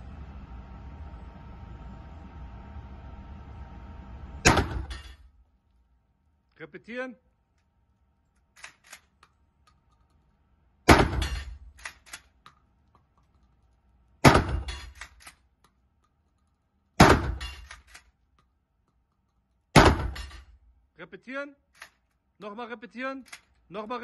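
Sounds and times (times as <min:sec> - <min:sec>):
shotgun shots echoing indoors: 0:04.4 - 0:05.3, 0:10.8 - 0:12.2, 0:14.2 - 0:15.4, 0:19.7 - 0:20.6.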